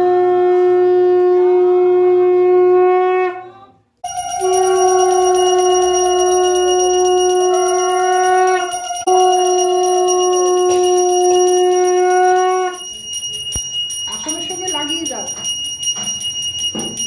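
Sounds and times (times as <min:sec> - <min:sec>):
conch shell blasts: 0:04.0 - 0:13.8.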